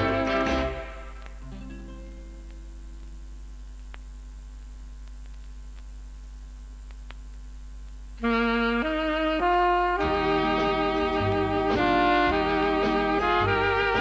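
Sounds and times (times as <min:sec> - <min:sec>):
wind instrument melody: 0:00.0 - 0:01.3, 0:08.2 - 0:14.0
steady hum: 0:00.0 - 0:14.0
faint clicks: 0:01.2 - 0:01.4, 0:02.4 - 0:06.0, 0:06.8 - 0:08.2.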